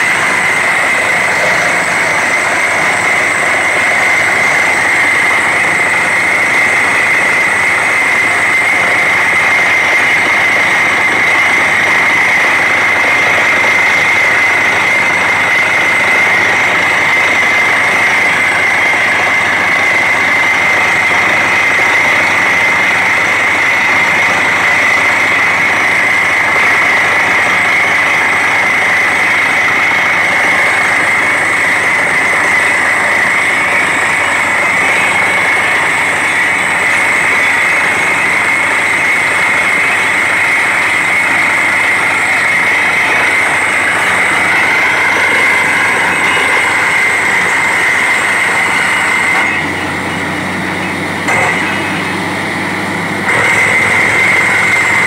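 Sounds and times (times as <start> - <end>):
drilling rig running: 0.0 - 55.0
steady high whine: 0.0 - 55.0
compressed air blowing: 30.4 - 55.0.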